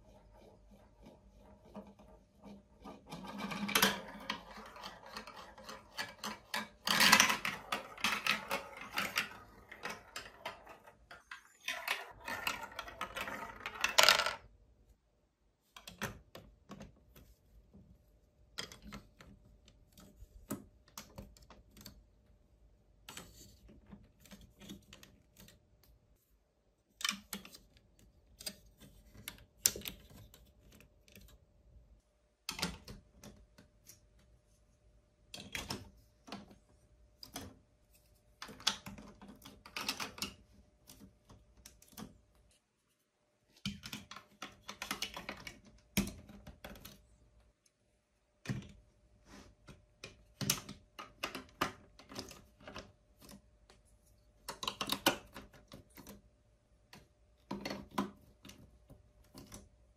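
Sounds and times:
plastic blocks clicking and clattering: 0.4 - 14.5, 18.5 - 22.1, 38.4 - 42.3, 43.6 - 47.1, 49.9 - 53.5, 54.4 - 56.3, 56.9 - 59.7.

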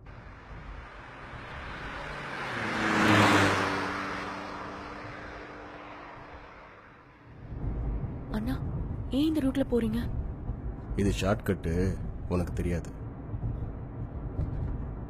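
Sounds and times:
car passing by: 0.0 - 7.5.

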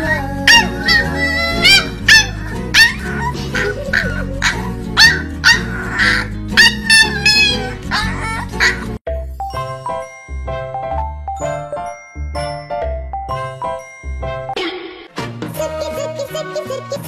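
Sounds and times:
puppy yipping: 0.0 - 9.0
background music: 0.0 - 17.0.

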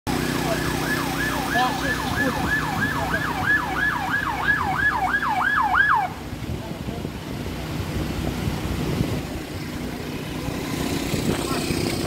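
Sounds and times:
siren in fast yelp: 0.1 - 6.2
low engine hum: 0.1 - 12.0.

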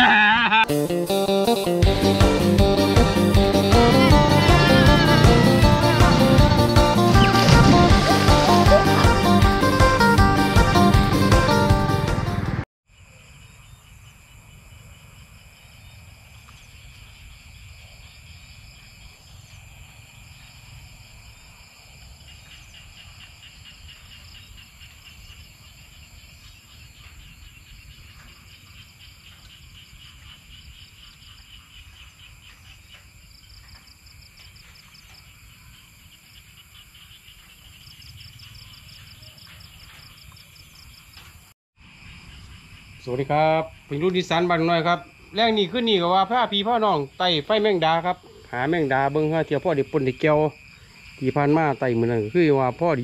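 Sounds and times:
crickets trilling: 12.9 - 53.0
insects pulsing trills: 12.9 - 53.0.

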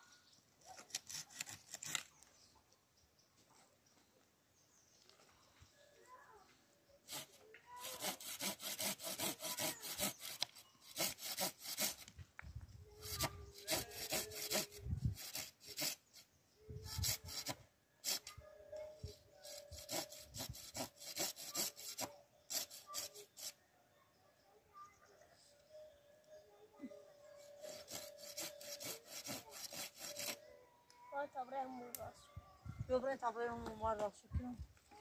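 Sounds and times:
hand saw cutting wood: 0.7 - 2.1, 7.1 - 12.1, 13.0 - 16.2, 16.9 - 18.3, 19.4 - 23.6, 27.4 - 30.4.

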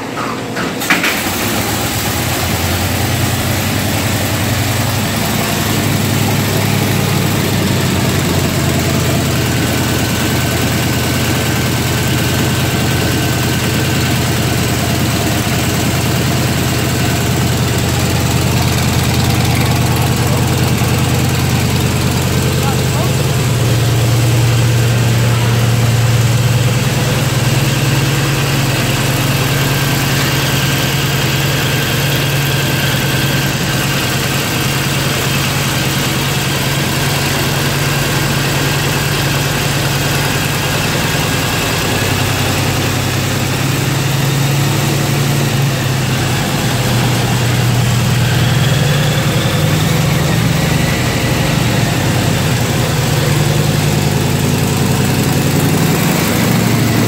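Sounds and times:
aircraft engine idling: 0.0 - 57.0.

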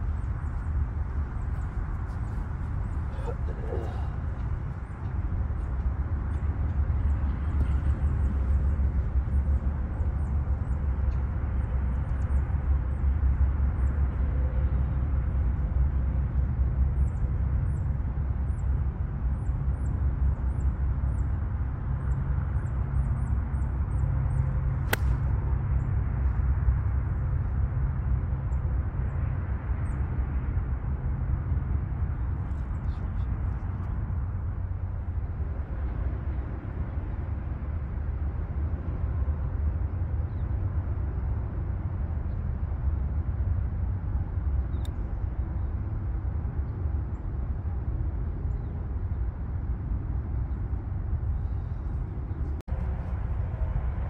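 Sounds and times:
low outdoor rumble: 0.0 - 54.0
golf club striking ball: 24.9 - 25.2.

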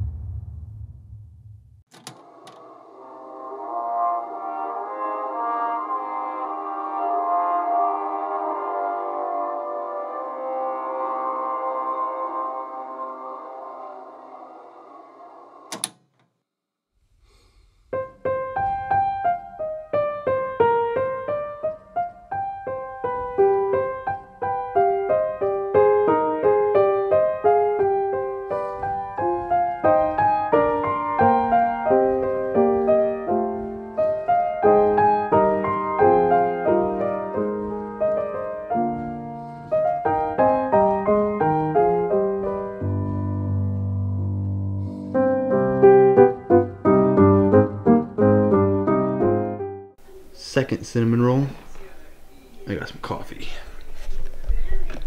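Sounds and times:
soft synth pad: 2.1 - 15.8
piano melody: 2.3 - 15.6, 17.9 - 50.4.

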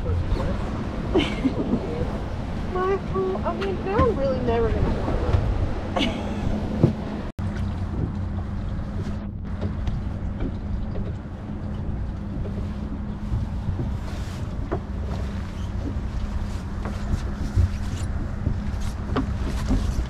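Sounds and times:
wind noise on microphone: 0.0 - 20.0
outboard motor idling: 7.4 - 20.0.

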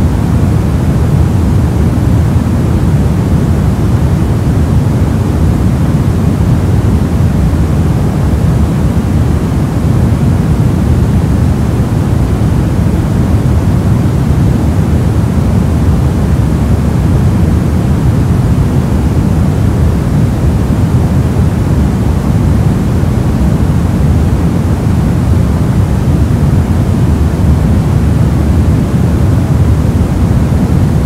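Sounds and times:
steady low hiss: 0.0 - 31.0.

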